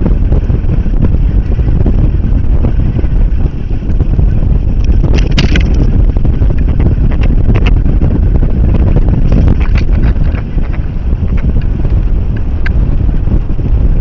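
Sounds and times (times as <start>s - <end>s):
wind buffeting microphone: 0.0s - 14.0s
crackles and knocks on camera: 4.7s - 12.8s.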